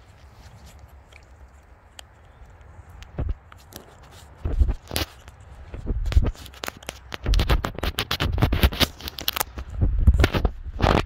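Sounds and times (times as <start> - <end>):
footsteps crunching through snow: 0.0 - 1.4, 3.2 - 6.6.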